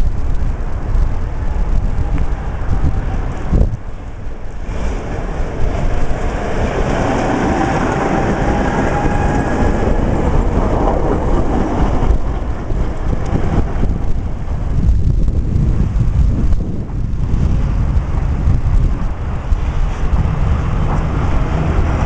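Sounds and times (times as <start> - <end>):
tram wheels rumbling and clacking: 0.0 - 22.0.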